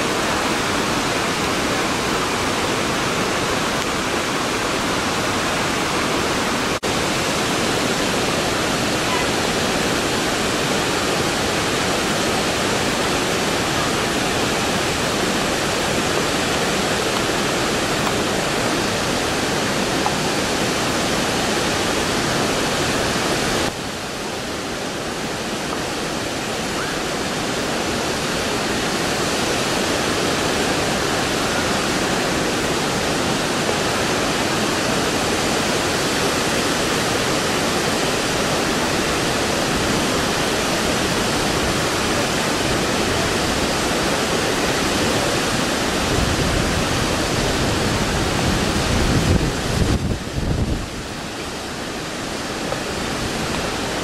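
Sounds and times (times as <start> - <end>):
river rushing over rocky falls: 0.0 - 54.0
wind rumble on microphone: 45.5 - 51.2.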